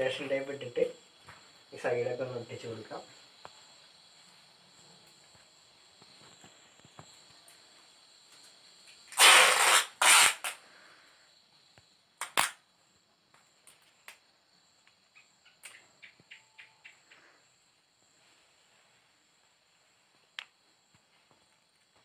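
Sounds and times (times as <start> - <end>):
tape ripping off roll: 9.1 - 10.6, 12.2 - 12.6
faint ticks: 14.8 - 17.2.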